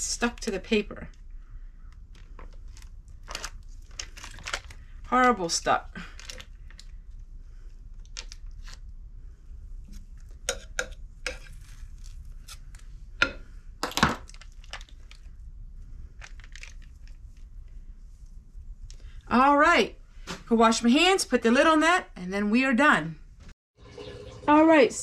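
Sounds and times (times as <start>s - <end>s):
foil wrapper crinkling: 2.1s - 4.9s, 6.1s - 6.9s, 14.2s - 15.3s, 16.2s - 17.2s.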